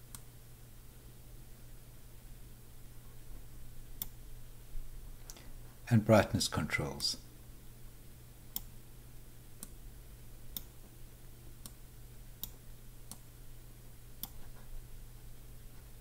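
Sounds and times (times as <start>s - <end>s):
faint low hum: 0.0s - 16.0s
computer mouse clicking: 14.2s - 14.6s.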